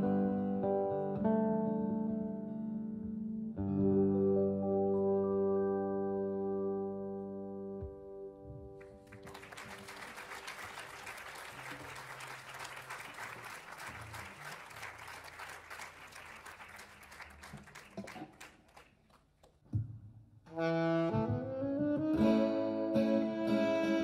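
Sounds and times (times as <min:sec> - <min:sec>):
audience applauding: 0:08.8 - 0:19.2.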